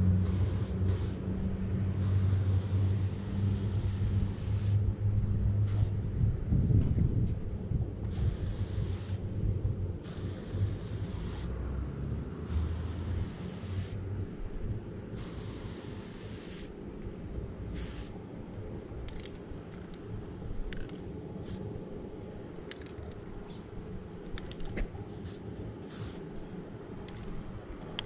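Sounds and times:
spray paint can hissing: 0.2s - 1.2s, 2.0s - 4.9s, 5.6s - 6.0s, 8.1s - 9.2s, 10.0s - 11.6s, 12.5s - 14.0s, 15.2s - 16.8s, 17.7s - 18.2s, 21.4s - 21.6s, 25.2s - 26.3s
low rumble: 4.8s - 8.1s, 9.2s - 10.0s.

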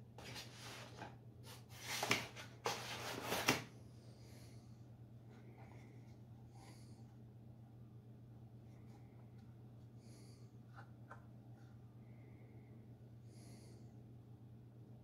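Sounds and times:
low steady hum: 0.0s - 15.0s
plastic box rustling and scraping: 0.2s - 3.7s.

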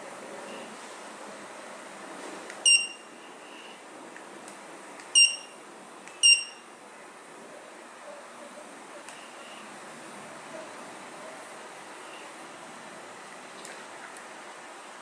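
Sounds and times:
high-pitched buzzer beeps: 2.6s - 3.1s, 5.2s - 5.6s, 6.2s - 6.6s.

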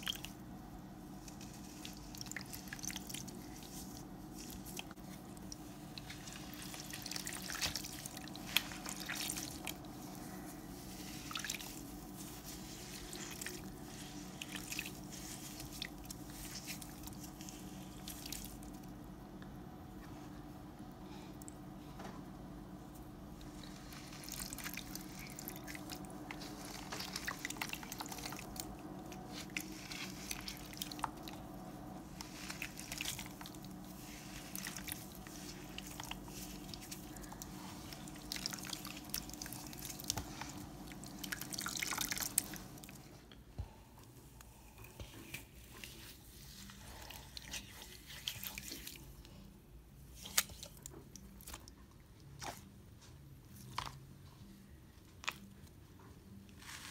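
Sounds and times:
slimy foam squished by hand: 1.2s - 18.9s, 23.4s - 43.0s.

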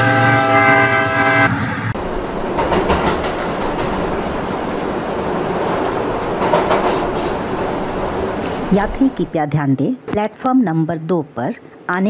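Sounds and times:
train horn blowing: 0.0s - 2.0s
train rumble and wheel clatter: 0.0s - 9.5s.

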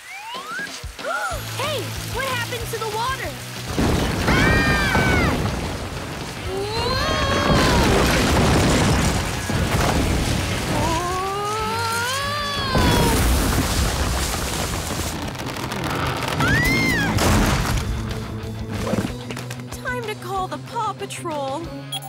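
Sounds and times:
background music: 0.0s - 13.7s, 16.3s - 22.0s
cartoon ground rumbling: 3.8s - 17.7s.

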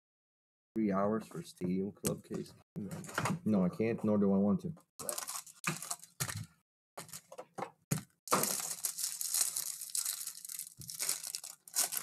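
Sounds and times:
foil wrapper crinkling: 5.0s - 7.3s, 8.3s - 12.0s.

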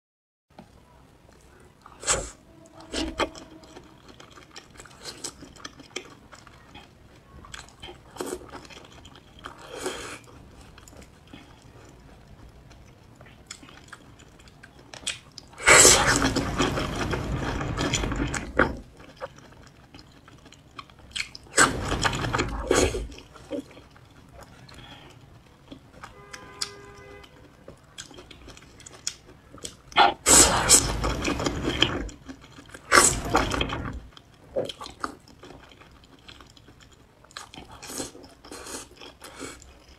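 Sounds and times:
wet chewing with mouth clicks: 2.7s - 16.6s, 17.6s - 39.9s
loud slurping: 15.6s - 16.6s, 30.1s - 31.1s.

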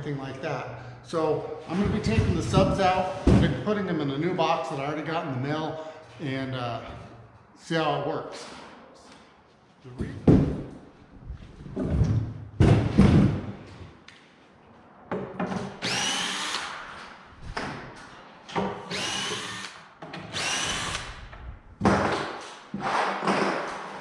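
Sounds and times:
cordless drill whining: 15.8s - 16.7s, 18.9s - 21.5s.

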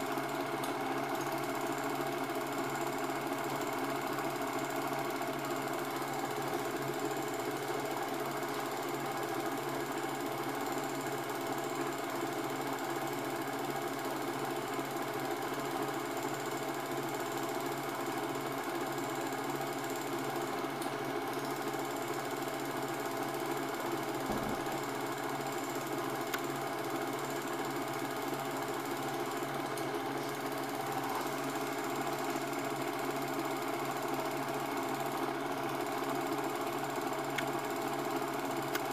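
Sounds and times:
film projector whirring: 0.0s - 38.9s.

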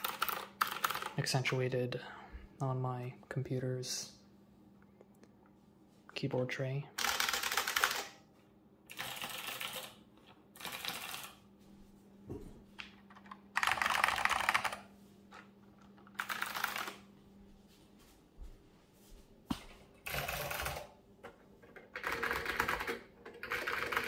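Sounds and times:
fast typing on mechanical keyboard: 0.0s - 1.4s, 7.0s - 8.2s, 8.9s - 10.0s, 10.6s - 11.4s, 13.2s - 14.9s, 16.1s - 17.0s, 20.1s - 20.9s, 22.0s - 24.0s.

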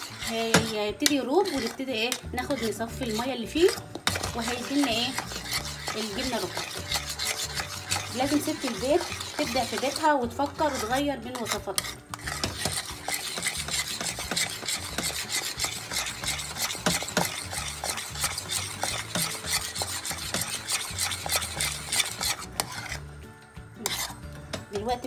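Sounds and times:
utensil scraping a pot: 0.0s - 25.0s.

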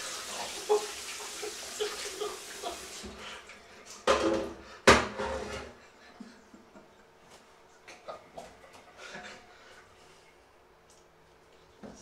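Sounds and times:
tap water running into sink: 0.0s - 3.3s.

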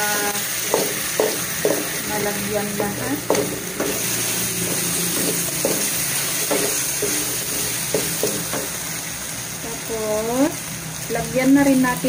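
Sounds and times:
food sizzling in a wok: 0.0s - 12.0s
spatula scraping a pan: 0.5s - 8.8s.

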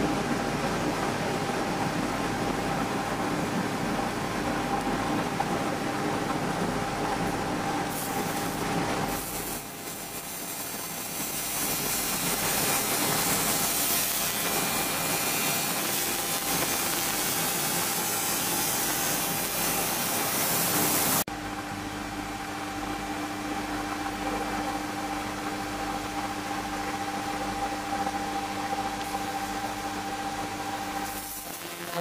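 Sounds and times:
machine hum: 0.0s - 32.0s
laser hissing crackle on metal: 7.9s - 21.2s, 31.0s - 32.0s.

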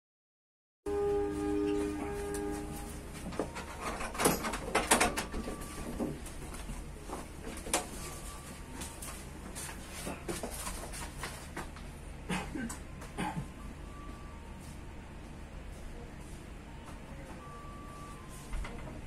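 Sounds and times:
low steady hum: 0.9s - 19.0s
scattered clicks and knocks: 3.2s - 6.2s.

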